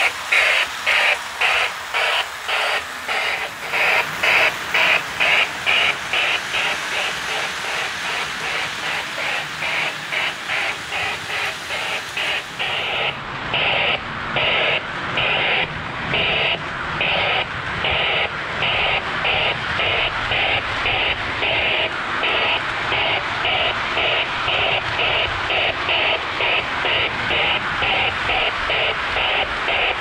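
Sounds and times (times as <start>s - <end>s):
model steam locomotive chuffing: 0.0s - 30.0s
wheels rumbling on track: 0.0s - 30.0s.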